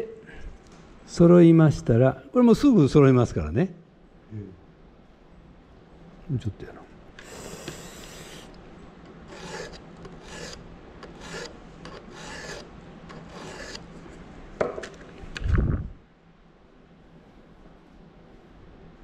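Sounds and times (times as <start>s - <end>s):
file rasping on chainsaw chain: 9.3s - 13.9s.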